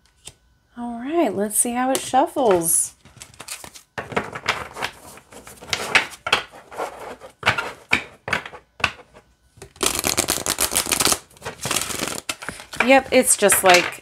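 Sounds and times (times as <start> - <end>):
riffle shuffle of cards: 9.8 - 13.8.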